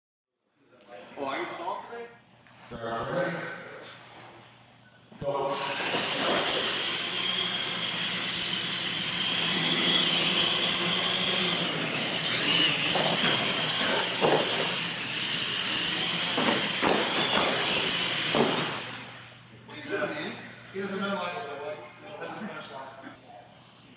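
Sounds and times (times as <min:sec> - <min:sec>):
electric motors whining: 0:03.6 - 0:23.9
tyre noise on concrete: 0:11.6 - 0:15.0, 0:15.6 - 0:19.0
sharp knocks: 0:16.3 - 0:18.8.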